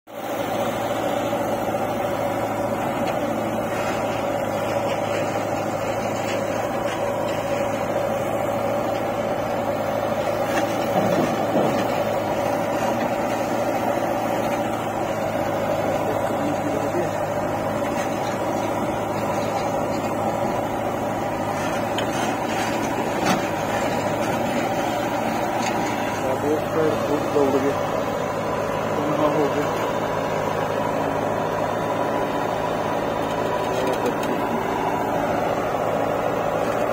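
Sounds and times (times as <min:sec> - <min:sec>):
diesel engine running under load: 0:00.1 - 0:36.9.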